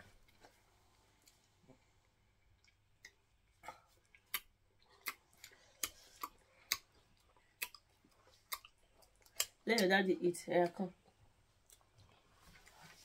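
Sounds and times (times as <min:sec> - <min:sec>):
wet mouth clicks from chewing: 0:04.1 - 0:09.9.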